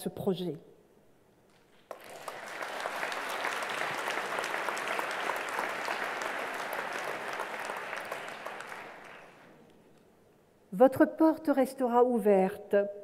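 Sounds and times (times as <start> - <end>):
audience applauding: 1.9 - 9.5.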